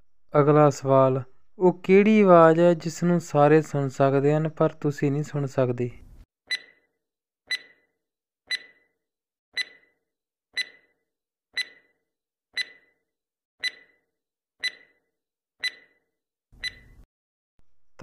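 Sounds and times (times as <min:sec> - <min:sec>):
clock ticking: 0:06.5 - 0:06.7, 0:07.5 - 0:07.8, 0:08.5 - 0:08.8, 0:09.6 - 0:09.9, 0:10.6 - 0:10.9, 0:11.6 - 0:11.9, 0:12.6 - 0:12.9, 0:13.6 - 0:14.0, 0:14.6 - 0:15.0, 0:15.6 - 0:15.9, 0:16.6 - 0:17.0.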